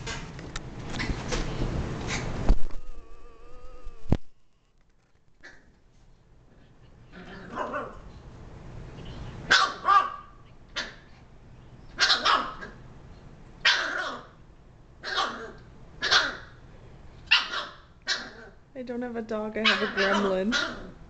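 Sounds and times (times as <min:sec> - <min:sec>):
puppy growling: 0:02.7 - 0:04.1, 0:07.0 - 0:08.0, 0:15.0 - 0:16.5, 0:19.8 - 0:21.0
puppy barking sharply: 0:07.5 - 0:08.0, 0:09.5 - 0:11.0, 0:12.0 - 0:12.8, 0:13.6 - 0:14.4, 0:15.0 - 0:16.6, 0:17.3 - 0:18.5, 0:19.6 - 0:20.9.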